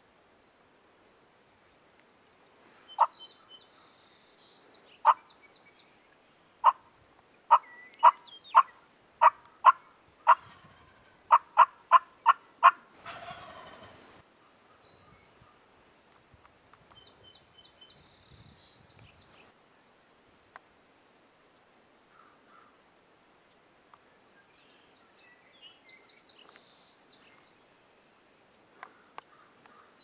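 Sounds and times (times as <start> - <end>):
small birds chirping: 0.0 - 6.9, 7.5 - 12.4, 13.1 - 19.6, 23.6 - 30.0
turkey clucking: 7.5 - 14.2.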